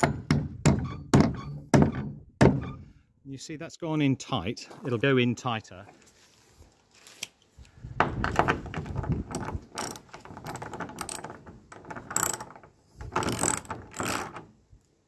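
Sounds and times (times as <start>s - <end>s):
ratchet wrench clicking: 12.1s - 12.6s, 13.2s - 14.4s.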